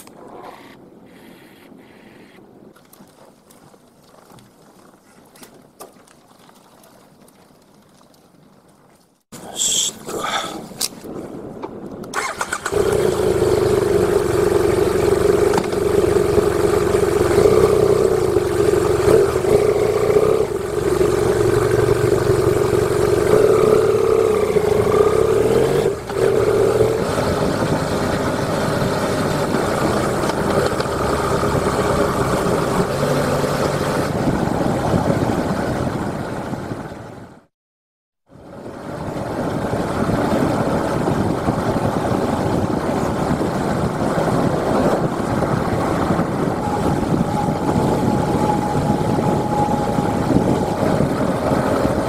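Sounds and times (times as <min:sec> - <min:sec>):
wind and road noise: 0:00.0 - 0:37.5, 0:38.2 - 0:52.0
motorcycle engine running: 0:12.2 - 0:37.4, 0:38.4 - 0:52.0.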